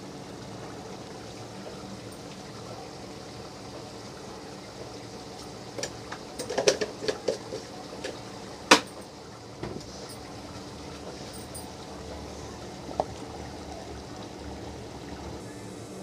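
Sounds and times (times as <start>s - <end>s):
food frying in a pan: 0.0s - 16.0s
plastic containers clicking and knocking: 5.8s - 8.9s.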